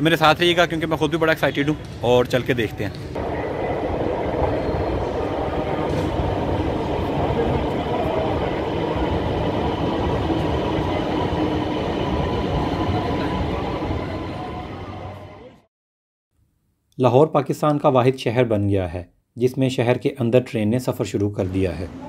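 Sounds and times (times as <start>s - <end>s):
train wheels rolling on rails: 3.2s - 15.3s
faint high whine: 3.2s - 15.6s.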